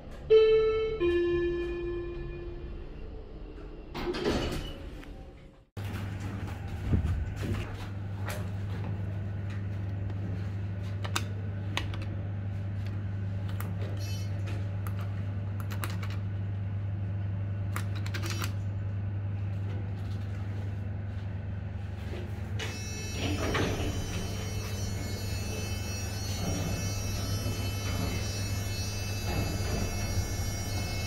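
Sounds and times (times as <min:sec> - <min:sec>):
elevator low hum: 0:00.0 - 0:31.0
elevator doors rattling open: 0:03.4 - 0:05.4, 0:23.1 - 0:24.4, 0:26.4 - 0:30.9.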